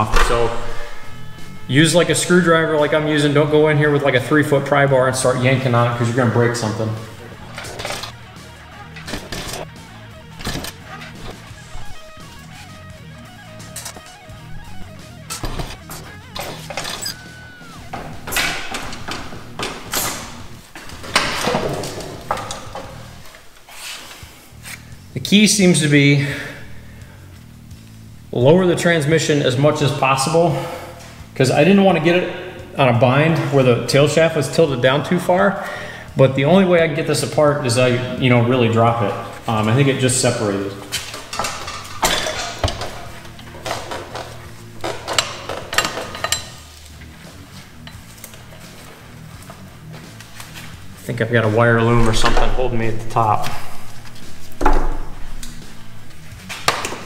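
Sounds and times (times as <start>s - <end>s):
metal transmission scraping and clunking: 5.7s - 24.1s, 40.9s - 57.0s.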